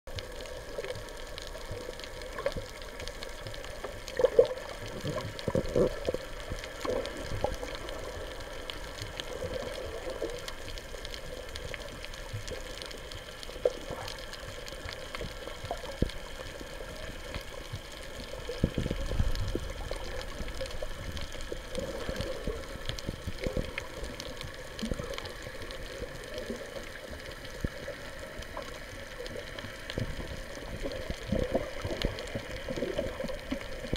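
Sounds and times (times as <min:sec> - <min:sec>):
muffled underwater sloshing: 0:00.1 - 0:33.9.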